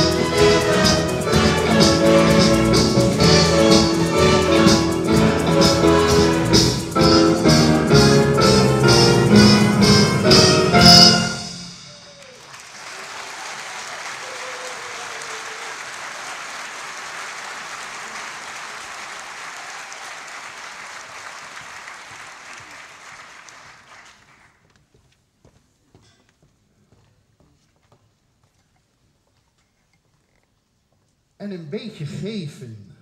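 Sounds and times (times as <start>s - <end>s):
orchestra final chord: 0.0s - 12.2s
audience applauding: 11.8s - 24.7s.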